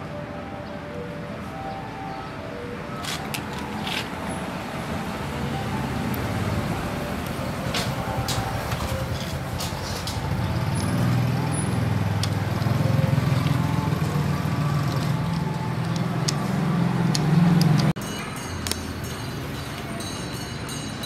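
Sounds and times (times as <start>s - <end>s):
vehicle engine running: 3.2s - 18.0s.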